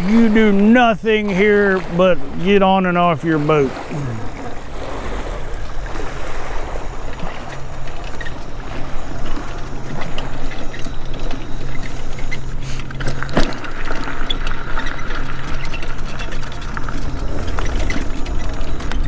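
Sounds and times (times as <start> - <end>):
wind on microphone: 0.0 - 12.9
steady low hum: 0.0 - 19.0.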